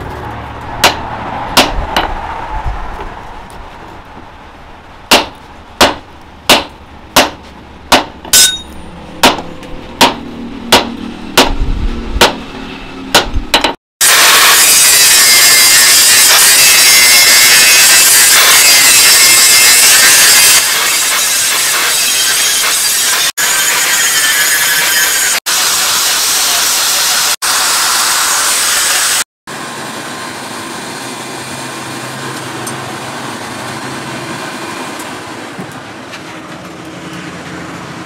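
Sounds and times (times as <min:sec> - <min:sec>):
hammer striking steel on anvil: 0:00.8 - 0:01.0, 0:01.6 - 0:02.2, 0:05.1 - 0:11.6, 0:12.2 - 0:12.5, 0:13.1 - 0:13.8
angle grinder grinding steel: 0:14.0 - 0:29.2.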